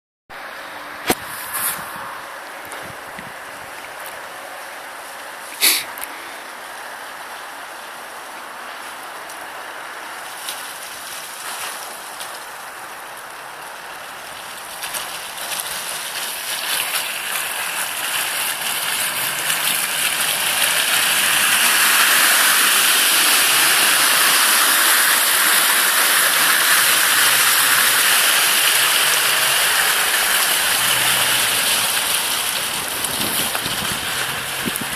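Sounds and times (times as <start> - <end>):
tyres splashing through mud: 0.4 - 34.9
car engine running low: 12.0 - 34.9.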